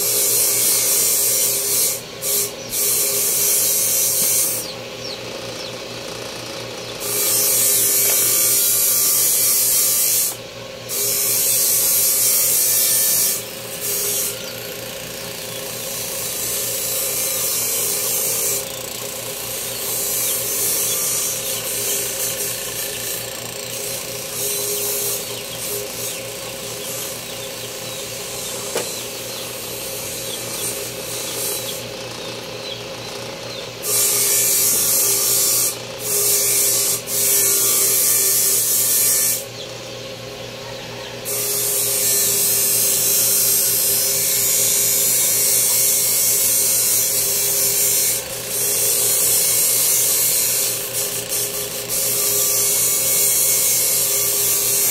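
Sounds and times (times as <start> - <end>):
high-pitched grinding: 0.0 - 39.6, 41.2 - 54.9
small power tool motor running: 0.0 - 54.9.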